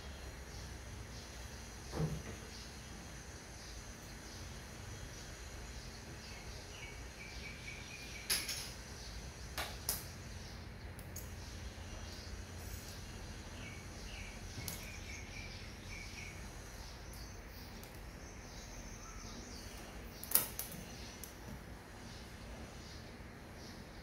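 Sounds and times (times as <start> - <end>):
faint bird chirps: 0.0 - 24.0.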